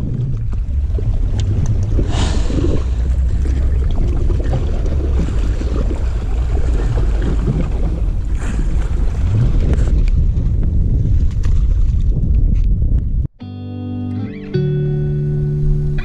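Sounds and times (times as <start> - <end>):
sea washing on rocks: 0.0 - 10.4
wind buffeting microphone: 0.0 - 13.3.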